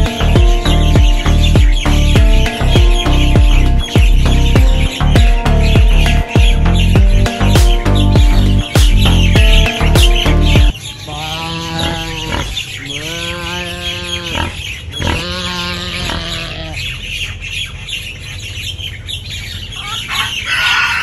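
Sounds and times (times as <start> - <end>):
birds chirping: 0.0 - 21.0
sheep bleating: 11.1 - 16.8.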